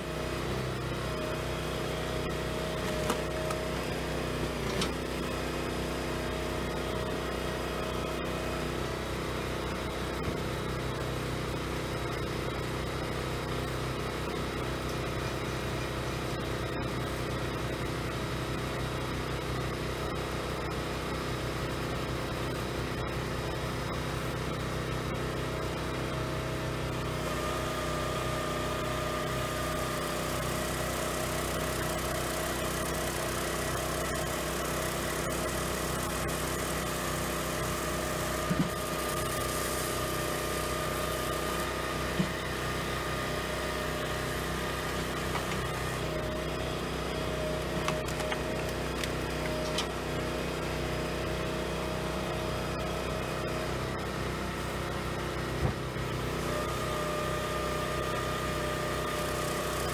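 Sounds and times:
firewood processor engine running: 0:00.0 - 0:59.9.

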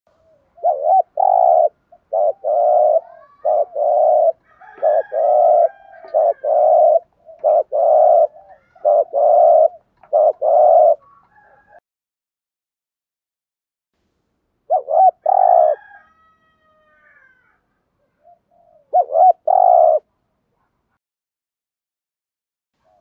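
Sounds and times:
dove cooing: 0:00.2 - 0:11.8, 0:14.7 - 0:16.0, 0:16.9 - 0:20.1.

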